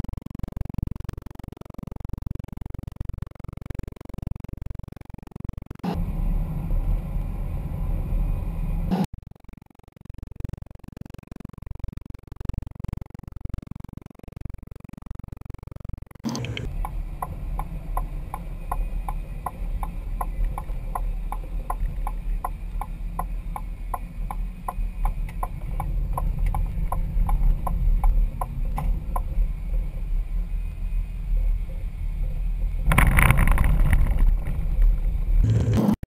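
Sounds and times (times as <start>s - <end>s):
road and engine rumble: 0.0s - 36.0s
turn signal ticking: 16.2s - 29.6s
tyres rushing on dirt road: 16.3s - 36.0s.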